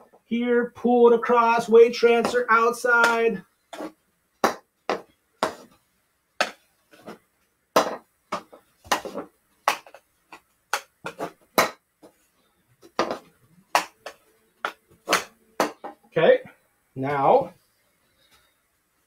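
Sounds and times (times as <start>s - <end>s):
hockey stick knocking ball: 2.1s - 5.7s, 6.4s - 7.2s, 7.8s - 12.2s, 12.8s - 16.0s.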